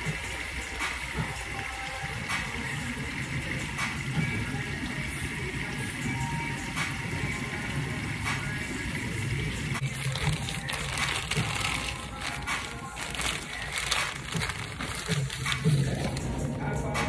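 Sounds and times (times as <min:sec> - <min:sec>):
background music: 0:00.0 - 0:17.0
plastic bag crinkling: 0:09.8 - 0:16.5.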